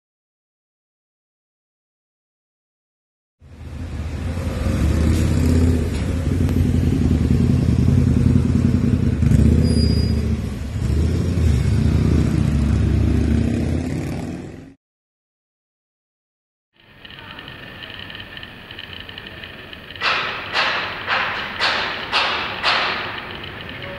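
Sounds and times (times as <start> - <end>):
low mechanical rumble: 16.8 - 23.9.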